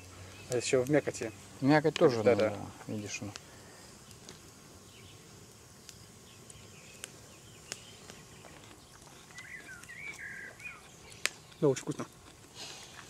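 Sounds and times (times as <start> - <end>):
faint bird chirps: 6.2 - 12.1.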